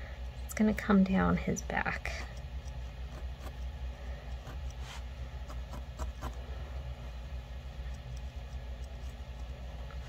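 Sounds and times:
steady low hum: 0.0 - 10.0
felting needle ticks: 1.8 - 4.8, 7.8 - 9.7.

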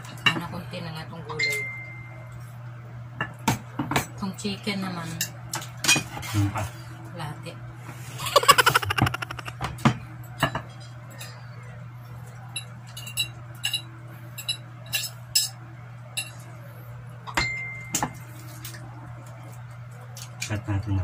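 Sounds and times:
eating clicks: 8.2 - 9.5.

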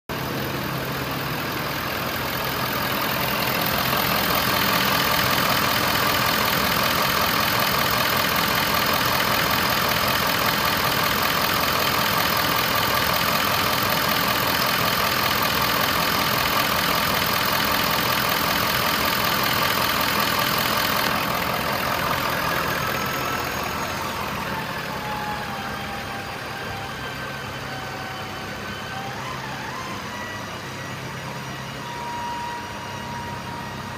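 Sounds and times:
diesel engine idling: 0.1 - 31.9
faint descending whines: 21.0 - 33.9.

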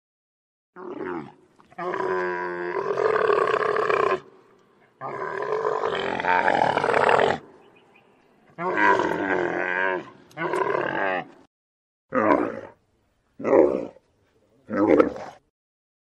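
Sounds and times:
camel bellowing: 5.0 - 7.6, 8.5 - 11.4.

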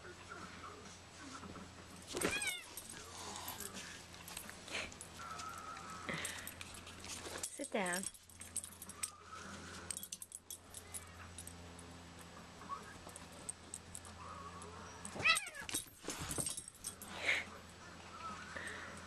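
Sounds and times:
pet crying: 2.2 - 2.8, 15.2 - 15.7.

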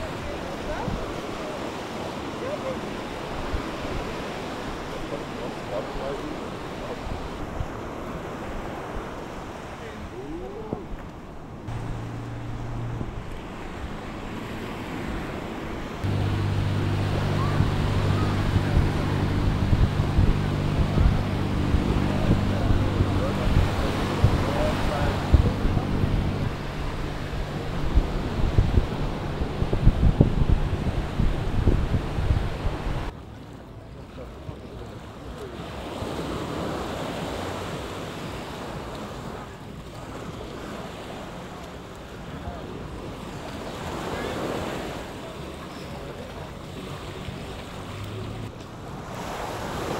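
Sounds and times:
faint voices: 0.0 - 31.9, 32.7 - 49.4
surf: 0.0 - 49.9
waves washing onto beach: 0.0 - 49.9
wind buffeting microphone: 6.8 - 33.2
low mechanical hum: 16.0 - 33.1.

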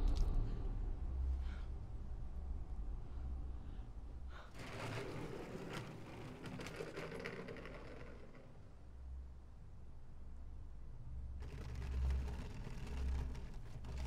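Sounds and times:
low rumble: 0.0 - 4.5.

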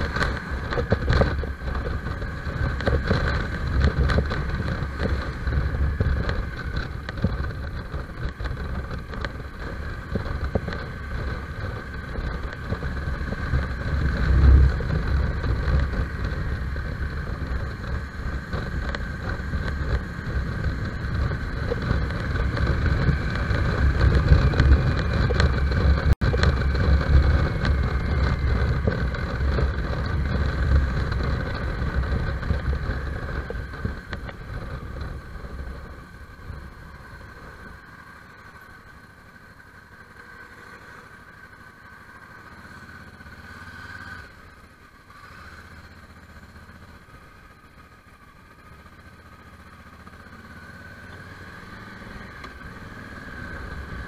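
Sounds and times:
wind rushing over microphone: 0.0 - 38.4
motorcycle engine running: 0.0 - 54.0.

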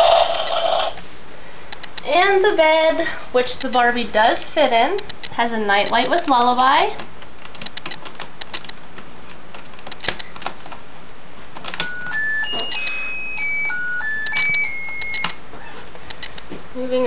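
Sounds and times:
tinny electronic lullaby beeps: 11.8 - 15.4.

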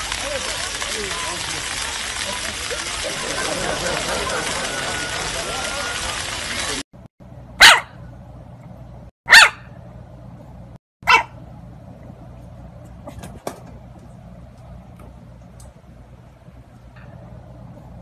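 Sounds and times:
puppy yapping barks: 7.6 - 8.0, 9.3 - 9.7, 11.0 - 11.4.

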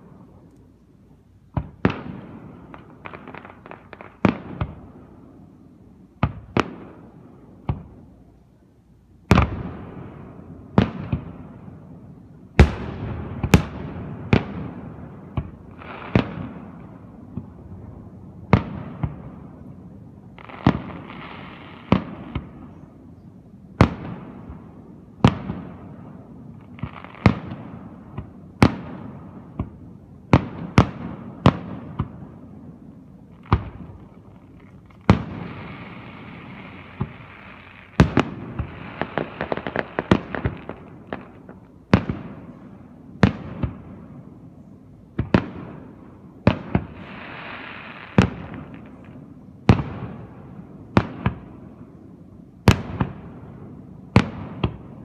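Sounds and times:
fireworks bangs: 12.5 - 17.6, 20.4 - 22.8, 23.8 - 44.2, 45.1 - 51.9, 52.6 - 55.0
fireworks fizzing: 33.4 - 42.6, 46.5 - 50.2.

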